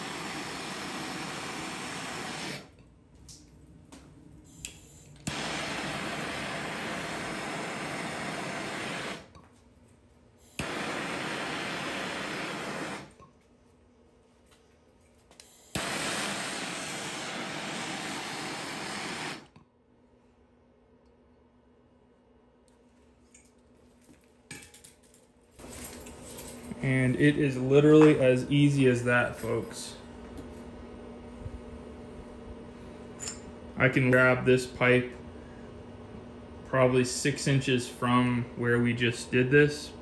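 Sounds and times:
torch flame hissing: 0.0 - 2.8, 4.5 - 9.3, 10.5 - 13.2, 15.6 - 19.5
torch ignition click: 4.5 - 9.3, 10.5 - 13.2, 15.4 - 19.6.

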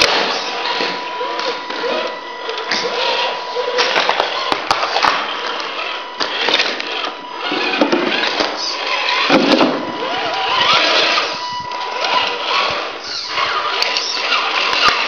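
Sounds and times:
toy truck electric motor whining: 0.0 - 15.0.

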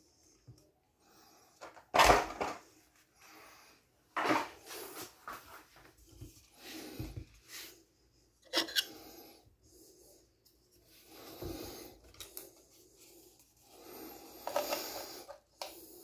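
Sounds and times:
hands rubbing and scraping parts: 8.4 - 9.0.

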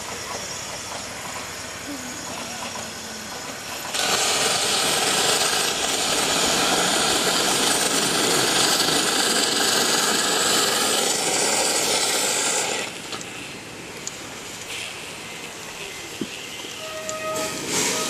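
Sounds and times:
steam locomotive hissing steam: 0.0 - 18.0.

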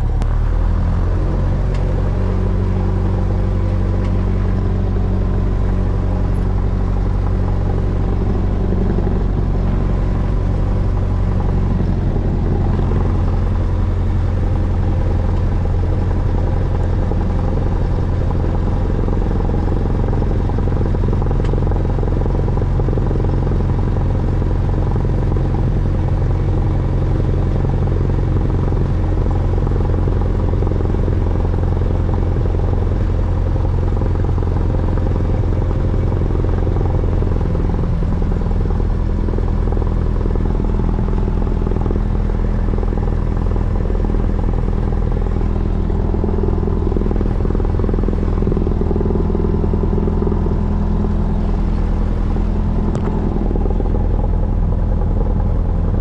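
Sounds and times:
aircraft engine droning: 0.0 - 56.0.

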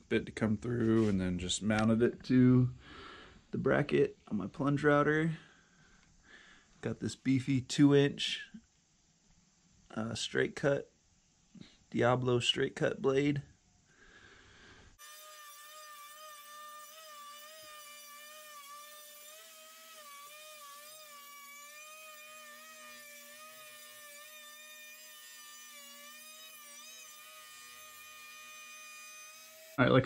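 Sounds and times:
router motor whining in wood: 15.0 - 29.8.

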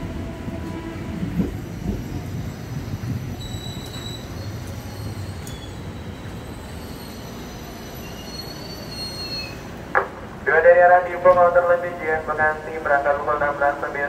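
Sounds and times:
train rumble: 0.0 - 14.0
wheel and brake squeals: 3.3 - 9.8.

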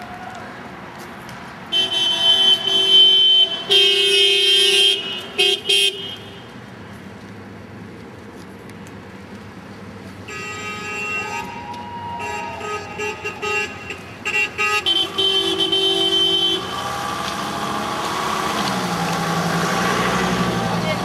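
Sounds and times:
car horn honking: 1.7 - 6.6, 10.2 - 17.2.

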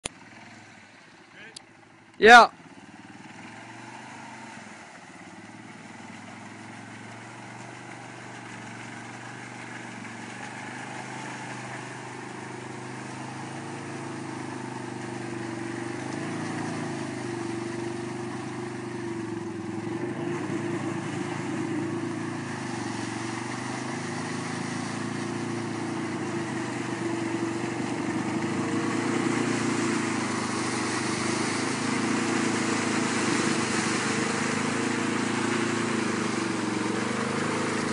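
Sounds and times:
atv engine revving: 0.0 - 37.9
mud and water splashing: 0.0 - 37.9.

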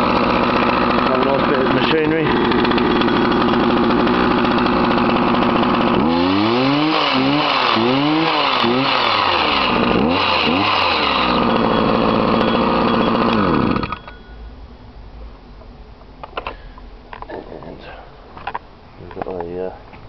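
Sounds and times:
chainsaw engine revving: 0.0 - 14.1.

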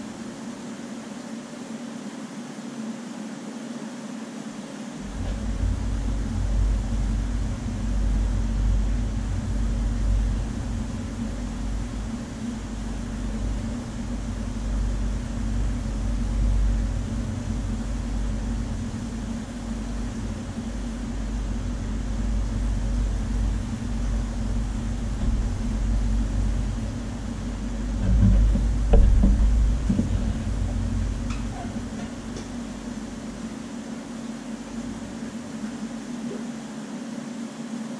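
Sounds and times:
low machine hum: 0.0 - 37.9
deep uneven rumble: 5.0 - 36.4
faint knocks: 26.8 - 32.7.

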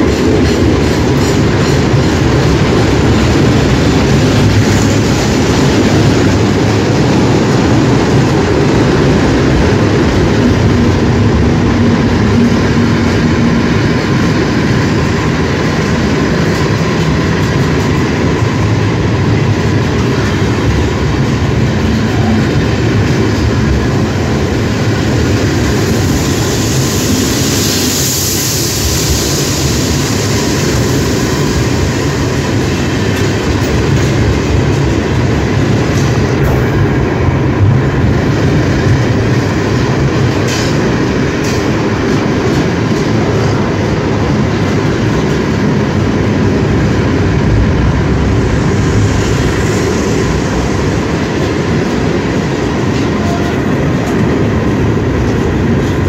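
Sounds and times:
train wheels rumbling on rails: 0.0 - 56.0
high hiss: 25.4 - 32.6.

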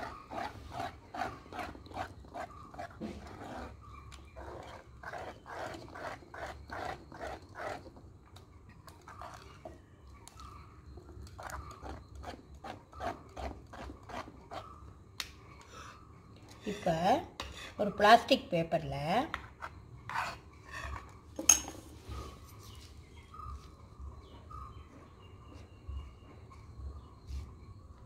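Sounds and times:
metal spoon scraping thick paste: 0.0 - 9.8, 11.1 - 14.8, 16.0 - 18.0, 19.5 - 21.2.

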